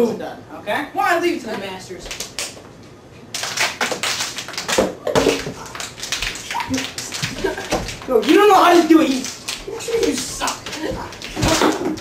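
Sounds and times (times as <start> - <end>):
plastic bottle crackling: 3.4 - 12.0.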